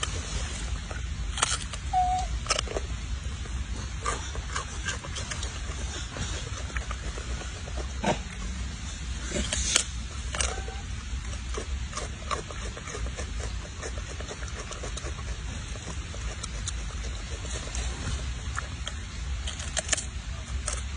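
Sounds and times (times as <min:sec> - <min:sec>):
monkey crunching cucumber: 0:00.0 - 0:20.9
steady low rumble: 0:00.0 - 0:20.9.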